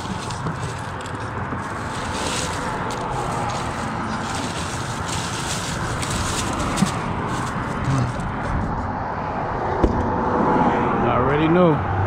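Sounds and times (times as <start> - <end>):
crushed ice crunching: 0.0 - 8.7
plastic bag rustling: 0.0 - 8.7
steady rushing background noise: 0.0 - 10.2.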